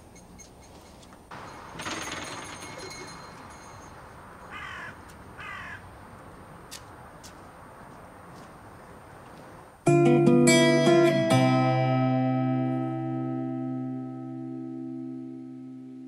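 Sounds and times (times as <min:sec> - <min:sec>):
outdoor background noise: 0:00.0 - 0:16.0
crow-like bird cawing: 0:04.4 - 0:06.0.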